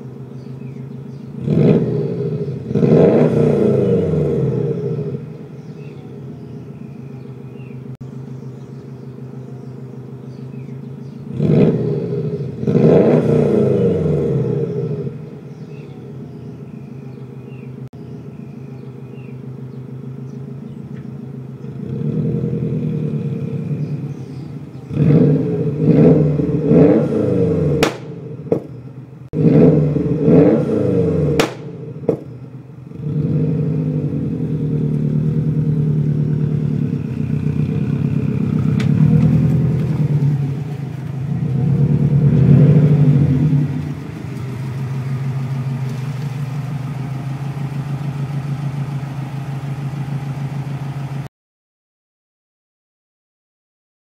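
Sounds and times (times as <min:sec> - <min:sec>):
car engine idling: 0:00.0 - 0:51.3
car engine revving: 0:00.0 - 0:51.3
exhaust pops: 0:24.9 - 0:51.2.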